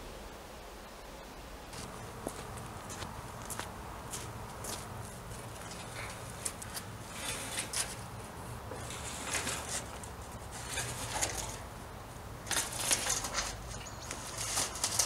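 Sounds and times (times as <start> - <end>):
footsteps crunching on gravel: 1.7 - 8.1
steel sliding gate rolling: 7.0 - 11.7, 12.4 - 15.0.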